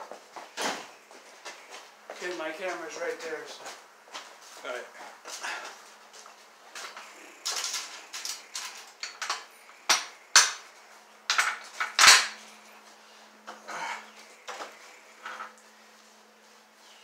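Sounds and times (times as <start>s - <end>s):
metal tools clinking: 6.8s - 10.6s, 11.3s - 12.8s.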